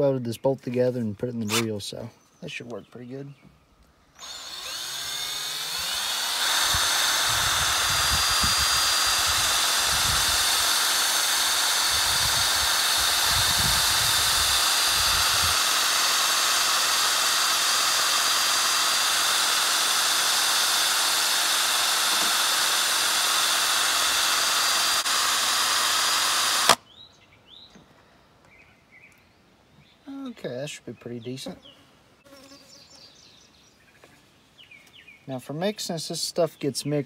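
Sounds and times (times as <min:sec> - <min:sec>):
cordless drill whining: 0:01.4 - 0:01.7, 0:04.2 - 0:26.8.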